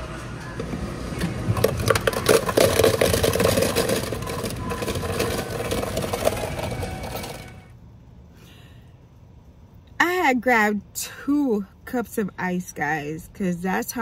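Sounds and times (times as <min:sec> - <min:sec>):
ice clattering into a foam cup: 0:01.5 - 0:07.7.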